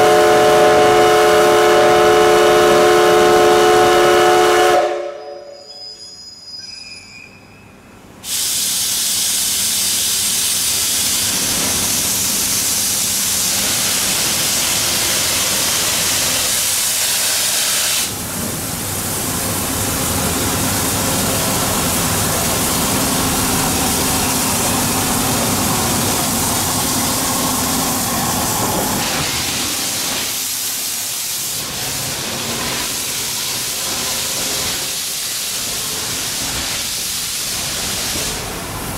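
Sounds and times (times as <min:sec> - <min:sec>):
steam locomotive hissing: 0:00.0 - 0:07.1, 0:08.2 - 0:38.9.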